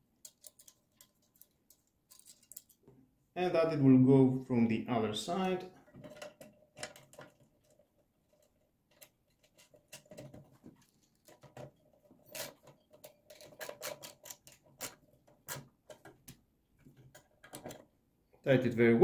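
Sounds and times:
metal parts clicking and tapping: 0.2s - 2.8s, 5.9s - 17.9s.

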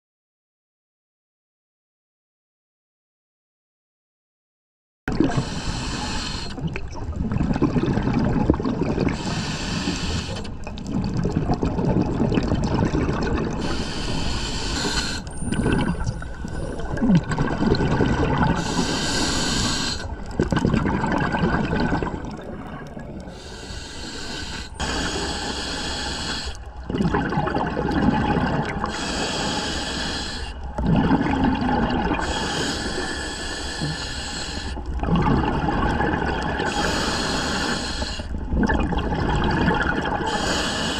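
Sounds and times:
bubbling exhaust: 5.1s - 40.9s
hissing regulator inhale: 5.3s - 6.6s, 9.1s - 10.6s, 13.6s - 16.9s, 18.6s - 20.2s, 23.2s - 26.7s, 28.9s - 30.7s, 32.2s - 34.9s, 36.6s - 38.4s, 40.3s - 40.9s.

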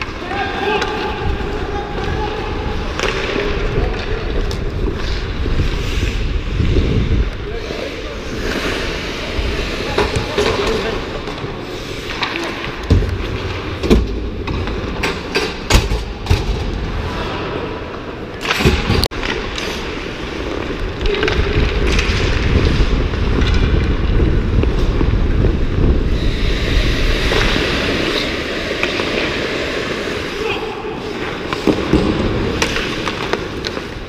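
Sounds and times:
skates gliding on ice: 0.0s - 34.0s
wind rumble on microphone: 1.2s - 8.5s, 20.7s - 28.6s.

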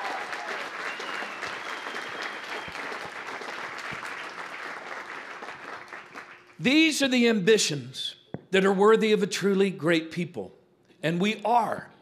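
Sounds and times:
audience clapping: 0.0s - 6.7s.

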